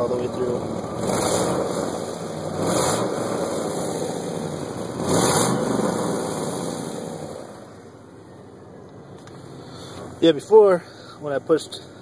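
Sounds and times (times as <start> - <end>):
pickup truck engine revving: 0.0 - 7.8.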